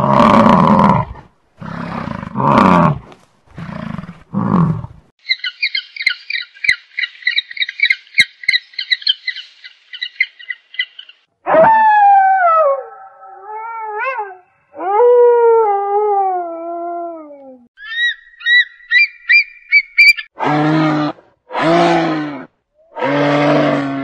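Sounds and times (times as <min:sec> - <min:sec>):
high-pitched chattering calls: 0:05.2 - 0:11.2
wolf howling: 0:11.5 - 0:17.6.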